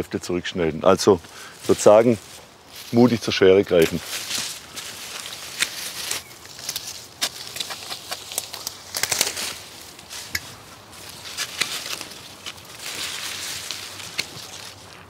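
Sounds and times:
leaves rustling: 0.0 - 15.0
pruning shears snipping: 3.7 - 15.0.

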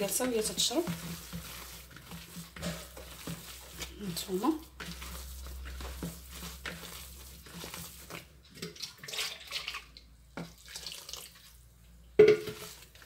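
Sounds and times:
hand squelching wet dough: 0.0 - 13.0.

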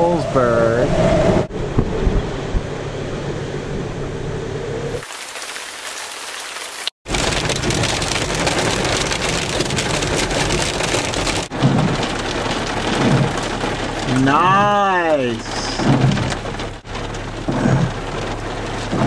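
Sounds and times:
rain on vehicle roof: 5.0 - 19.0.

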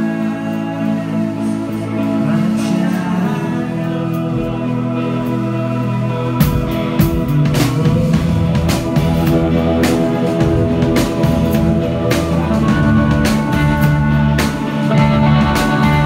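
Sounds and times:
electric guitars: 0.0 - 16.0
drum kit hits: 6.4 - 16.0.

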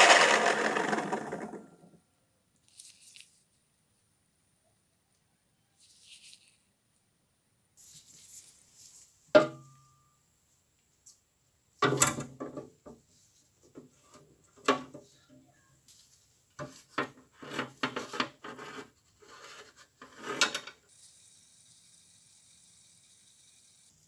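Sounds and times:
metal knocks and scrapes in tub: 16.6 - 20.7.

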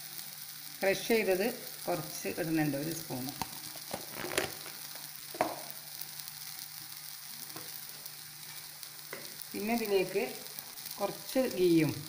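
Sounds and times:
faint hiss from pan: 0.0 - 12.0
spoon tapping frying pan: 5.3 - 5.7, 9.1 - 9.4.

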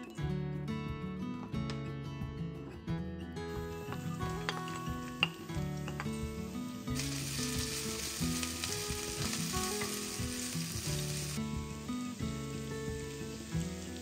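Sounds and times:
food sizzling in a frying pan: 3.7 - 14.0.

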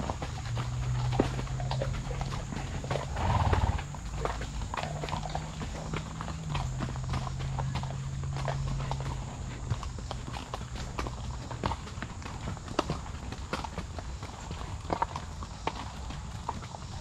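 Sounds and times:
horse hooves clip-clopping: 0.0 - 17.0.

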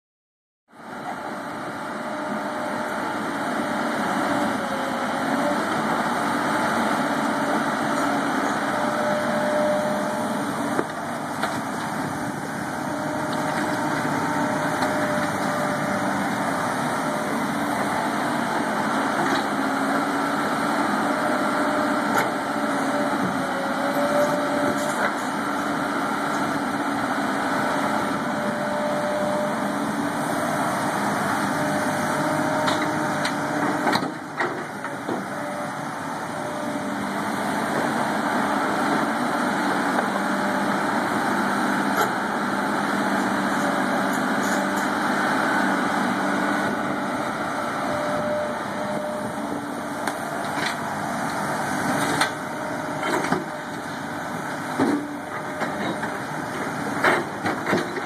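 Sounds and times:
excavator diesel engine running: 0.8 - 58.0.

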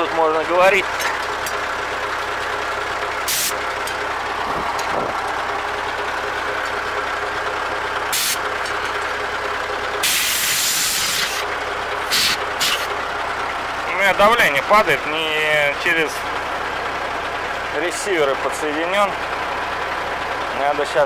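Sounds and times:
engine idling: 0.0 - 21.0
compressed air blow gun hissing: 3.3 - 3.6, 8.1 - 8.4, 10.0 - 11.4, 12.1 - 12.9.

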